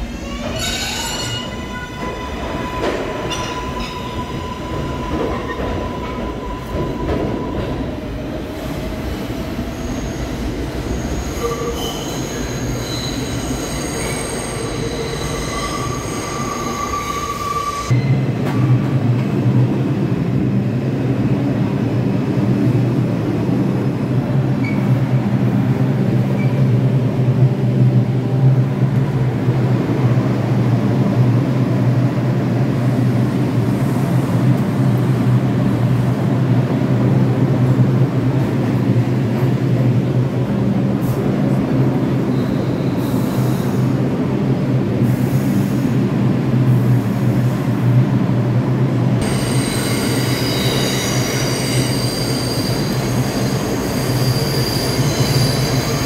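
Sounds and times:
subway train wheels squealing: 0:00.0 - 0:19.3, 0:23.8 - 0:56.0.

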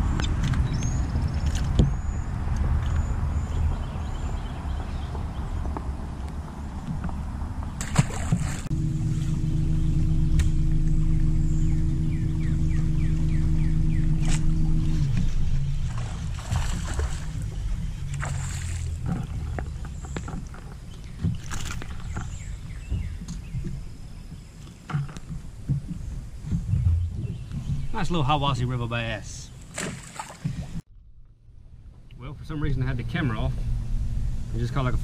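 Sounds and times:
water splashing: 0:04.6 - 0:22.7, 0:23.8 - 0:30.8
electric trolling motor humming: 0:06.7 - 0:24.3
fish splashing into water: 0:07.8 - 0:08.7, 0:15.9 - 0:17.5, 0:18.1 - 0:19.5, 0:29.7 - 0:30.8.

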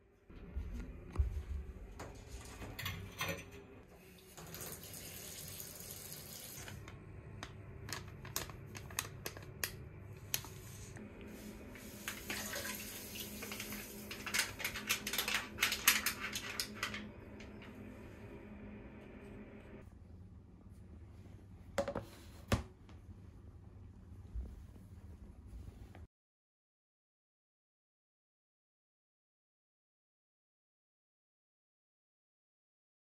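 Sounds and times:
water running from bathtub tap: 0:04.0 - 0:06.8, 0:11.8 - 0:17.0.

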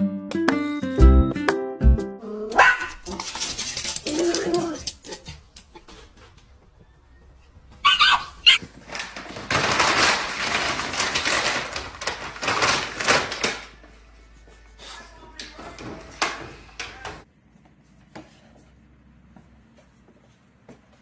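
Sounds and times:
plastic bag crinkling: 0:08.6 - 0:13.8.

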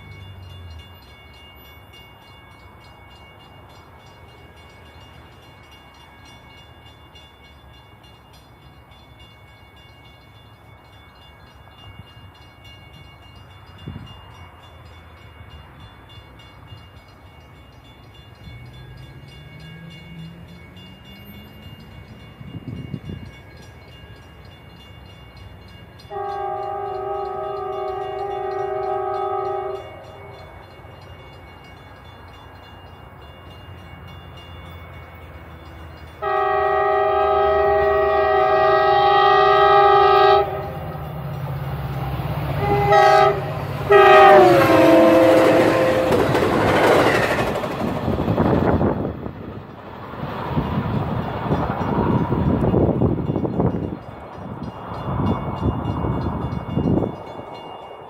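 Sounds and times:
road traffic hum: 0:17.6 - 0:24.5, 0:25.3 - 0:58.0
locomotive air horn blast: 0:26.1 - 0:29.9, 0:36.2 - 0:40.8, 0:42.6 - 0:46.2.

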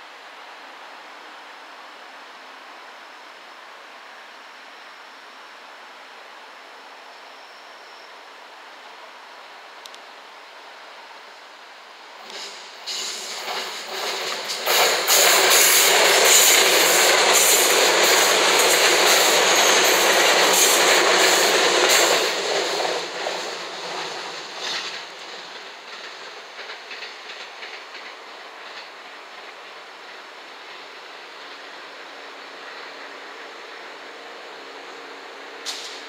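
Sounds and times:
electric train passing: 0:12.1 - 0:36.0
wheels clacking over rail joints: 0:12.2 - 0:31.6.

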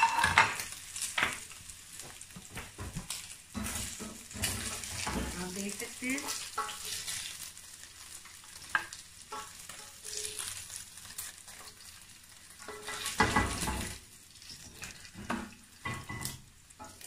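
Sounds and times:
chicken sizzling in a frying pan: 0:00.0 - 0:17.0
spatula scraping a pan: 0:03.0 - 0:17.0
spatula clattering: 0:03.1 - 0:07.5, 0:08.6 - 0:17.0.

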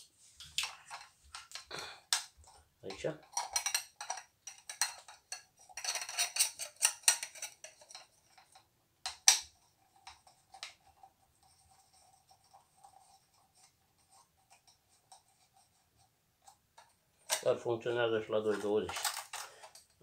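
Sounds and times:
metal cylinders clinking: 0:02.4 - 0:09.4, 0:18.2 - 0:20.0.

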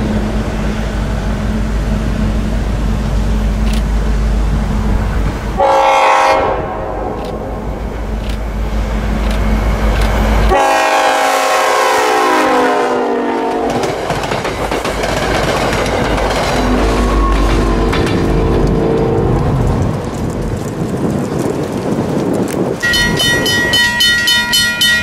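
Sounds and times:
diesel locomotive engine drone: 0:00.0 - 0:25.0
train horn: 0:05.6 - 0:07.4, 0:10.5 - 0:14.0, 0:16.6 - 0:19.5, 0:22.8 - 0:25.0
train wheels clattering over rails: 0:13.4 - 0:25.0.

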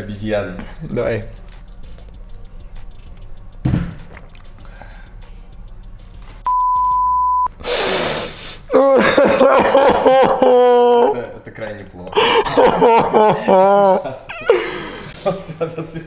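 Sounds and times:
censor bleep: 0:06.5 - 0:07.5.

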